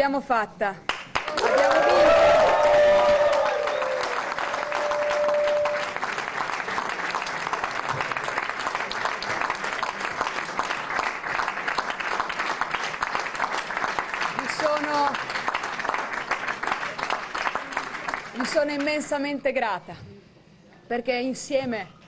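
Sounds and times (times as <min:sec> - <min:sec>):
crowd applauding: 0:00.9 - 0:19.1
person cheering: 0:01.3 - 0:05.9.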